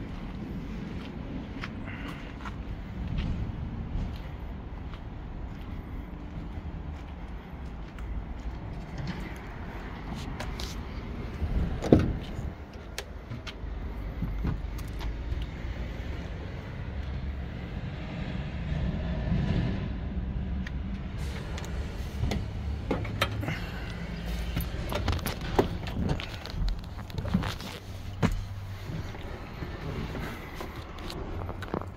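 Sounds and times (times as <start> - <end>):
cab door knocks and clicks: 11.7 - 13.6
diesel truck engine idling: 21.1 - 31.9.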